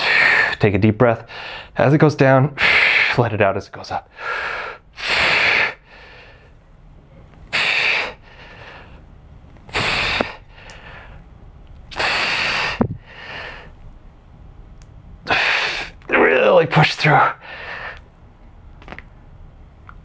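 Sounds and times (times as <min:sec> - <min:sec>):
man breathing forcefully: 0:00.0 - 0:00.6, 0:01.2 - 0:01.8, 0:02.6 - 0:03.2, 0:04.1 - 0:06.6, 0:07.5 - 0:09.1, 0:09.7 - 0:11.3, 0:11.9 - 0:13.8, 0:15.3 - 0:16.0, 0:17.4 - 0:18.1.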